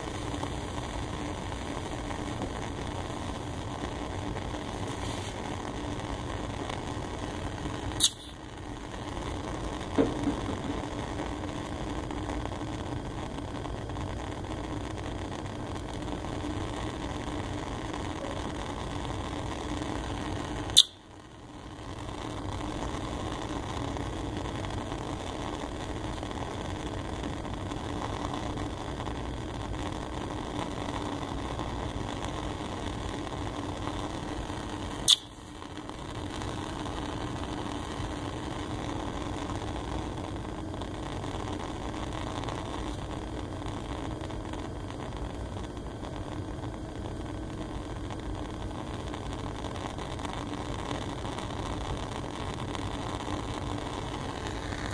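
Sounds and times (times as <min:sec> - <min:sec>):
gas flame hissing: 0:00.0 - 0:54.9
ventilation hum: 0:00.0 - 0:54.9
sharp click: 0:08.0 - 0:08.4, 0:35.1 - 0:35.3.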